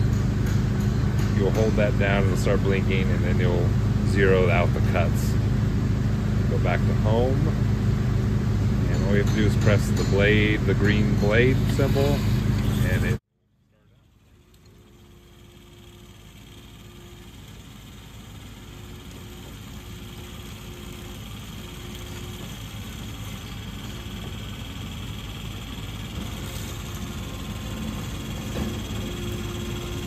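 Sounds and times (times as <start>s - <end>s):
bandsaw cutting metal bar: 8.9s - 13.2s, 26.1s - 30.0s.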